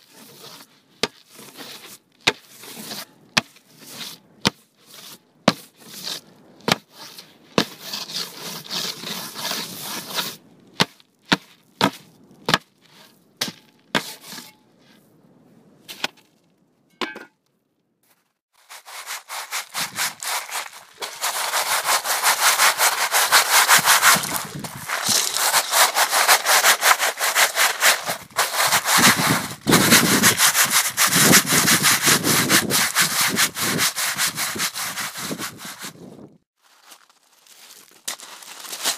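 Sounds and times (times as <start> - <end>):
scraping of hard surface: 12.8 - 15.0, 18.0 - 36.0
rubbing: 18.6 - 36.0.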